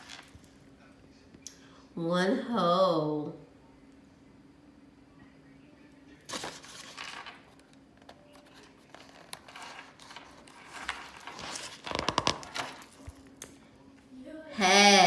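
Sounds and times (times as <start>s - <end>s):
page crinkling and flicking: 6.3s - 7.7s, 8.3s - 13.1s
paper rustling: 6.3s - 13.1s.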